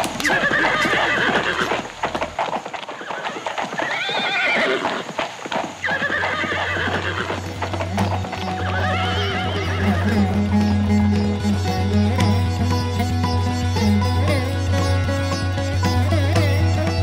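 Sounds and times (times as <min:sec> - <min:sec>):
horses neighing: 0:00.0 - 0:14.3
galloping hoofbeats: 0:00.0 - 0:17.0
low musical drone: 0:07.9 - 0:17.0.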